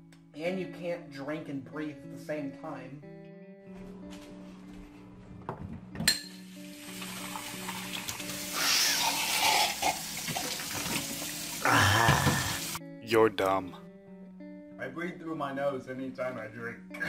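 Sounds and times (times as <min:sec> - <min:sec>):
water running into a glass: 0:06.5 - 0:12.8
person gasping: 0:11.6 - 0:12.8.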